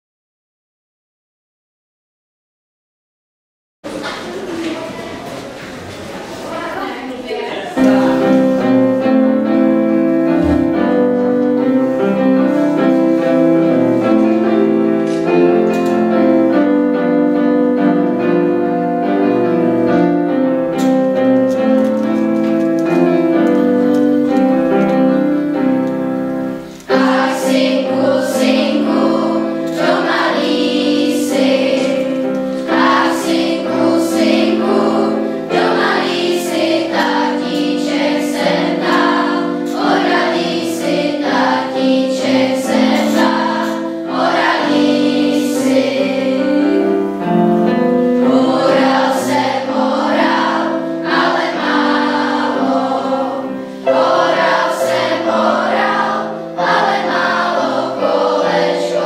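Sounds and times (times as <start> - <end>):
children's choir singing: 3.9 - 59.0
electric keyboard chords: 7.8 - 59.0.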